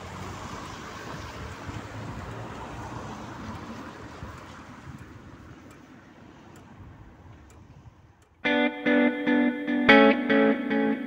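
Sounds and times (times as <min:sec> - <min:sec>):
car passing by: 0:00.0 - 0:08.1.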